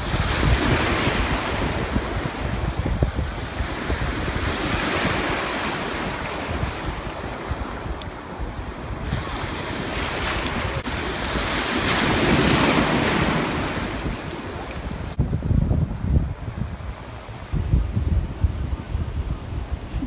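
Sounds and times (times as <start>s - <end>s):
ocean surf breaking: 0.0s - 15.2s
wind buffeting microphone: 0.0s - 20.0s.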